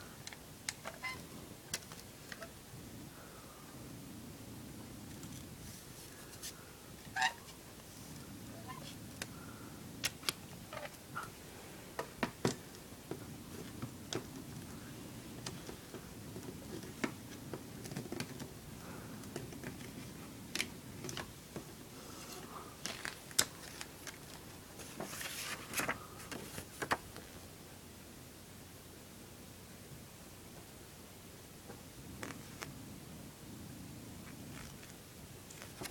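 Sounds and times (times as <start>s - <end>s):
paper rustling: 11.9s - 27.4s, 34.5s - 35.9s.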